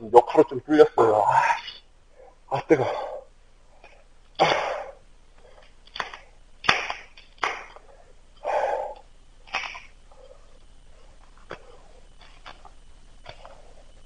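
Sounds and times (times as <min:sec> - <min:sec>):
man's sharp breaths and grunts: 0:08.4 - 0:09.0.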